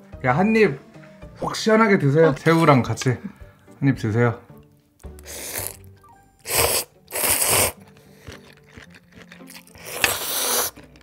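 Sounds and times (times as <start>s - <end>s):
noodles slurped loudly: 5.2s - 5.8s, 6.4s - 10.9s.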